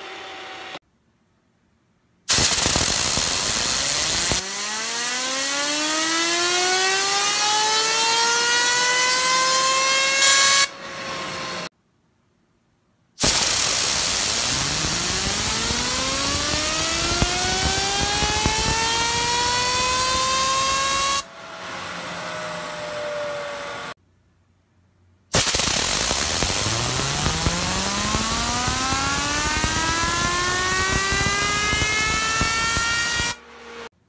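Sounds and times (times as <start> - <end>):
fidget spinner whining: 13.4 - 21.2, 25.5 - 33.4.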